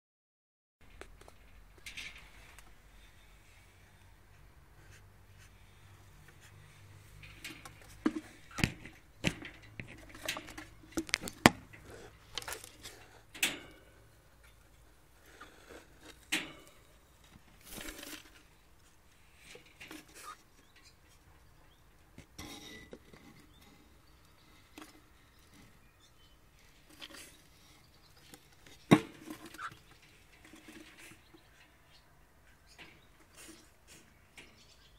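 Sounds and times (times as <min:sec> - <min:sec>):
scraping and rubbing: 0:15.2 - 0:20.5.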